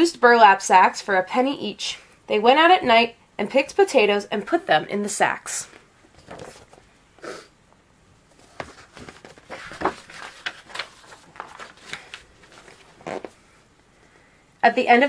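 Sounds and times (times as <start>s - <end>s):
paper pages rustling: 6.1s - 6.8s, 8.3s - 13.4s.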